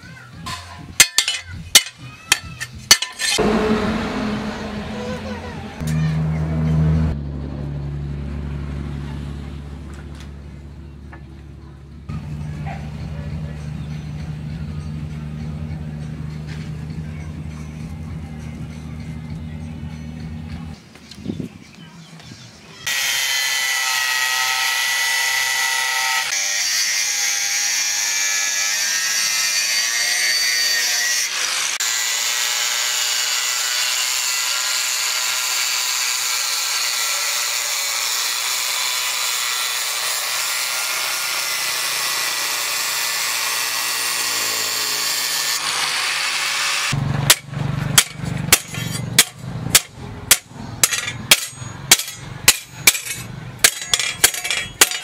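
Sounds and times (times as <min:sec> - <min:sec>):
hammer striking steel plate: 0:00.5 - 0:06.1, 0:47.3 - 0:55.0
angle grinder cutting steel: 0:00.5 - 0:06.9, 0:22.9 - 0:55.0.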